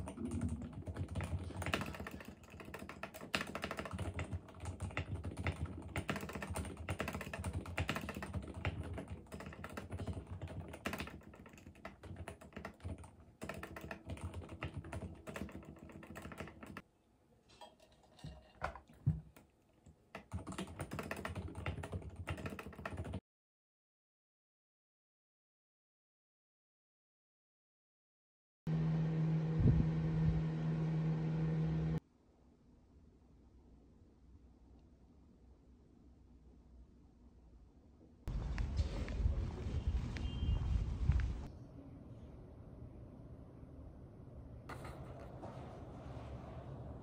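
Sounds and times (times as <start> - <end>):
typing on mechanical keyboard: 0.0 - 16.8, 20.1 - 23.2.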